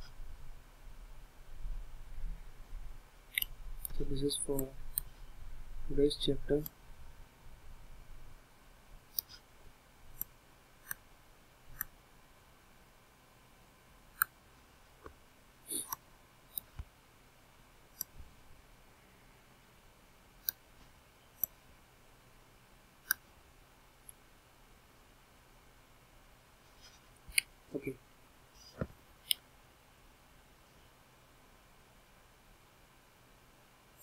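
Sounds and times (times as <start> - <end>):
computer mouse clicking: 9.1 - 9.4, 11.7 - 11.9.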